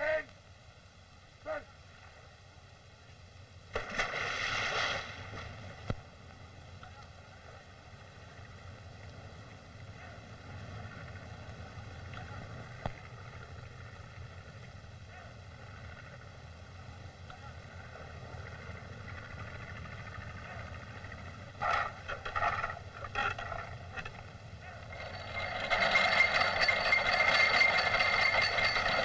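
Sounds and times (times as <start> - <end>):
film soundtrack hum and hiss: 0.0 - 29.0.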